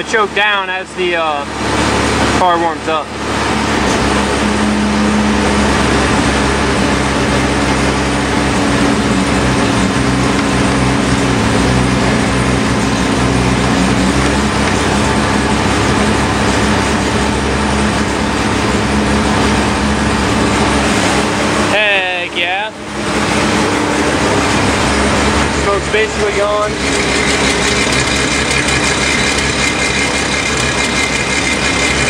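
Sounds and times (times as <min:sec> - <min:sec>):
rotary engine fast idle: 0:22.9 - 0:32.0.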